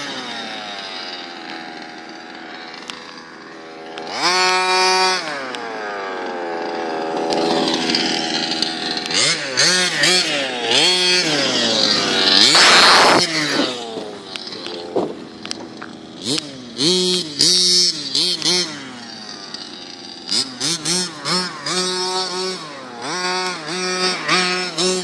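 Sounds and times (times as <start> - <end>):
two-stroke engine revving: 0.0 - 25.0
loud rush of noise: 12.4 - 14.2.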